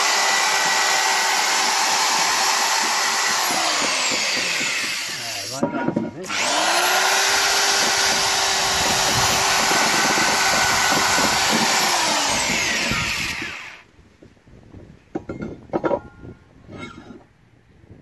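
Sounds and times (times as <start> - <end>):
electric drill whirring: 0.0 - 5.6, 6.2 - 13.9.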